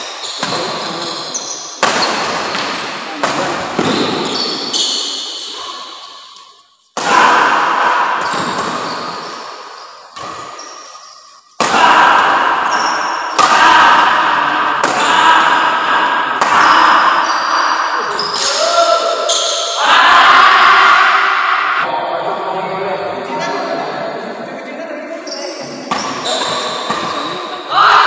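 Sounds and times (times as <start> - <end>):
rackets hitting shuttlecock: 0.1 - 18.6, 25.9 - 27.5.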